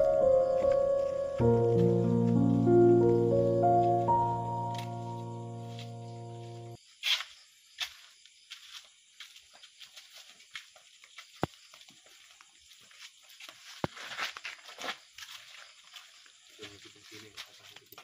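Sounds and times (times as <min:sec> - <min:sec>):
held music chord: 0:00.0 - 0:06.8
footsteps on paved path: 0:00.0 - 0:18.0.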